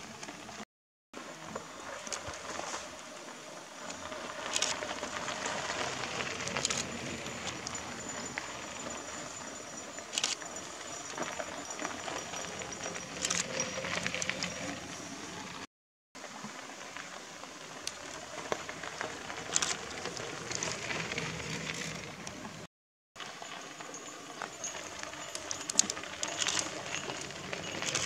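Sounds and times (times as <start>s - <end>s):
bicycle tyres crunching on gravel: 1.5s - 15.7s, 16.3s - 28.0s
sharp crackles: 3.8s - 8.5s, 17.8s - 22.6s.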